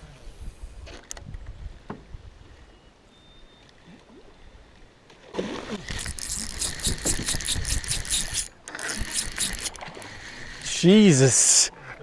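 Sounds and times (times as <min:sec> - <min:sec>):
spinning reel clicking: 0:05.9 - 0:10.7.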